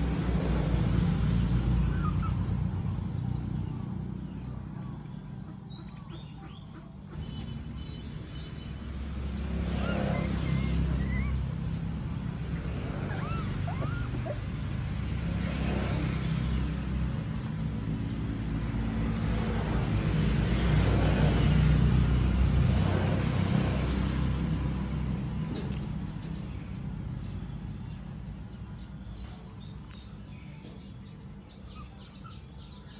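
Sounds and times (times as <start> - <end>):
vehicle passing: 0.0 - 32.9
faint bird chirps: 27.8 - 32.9.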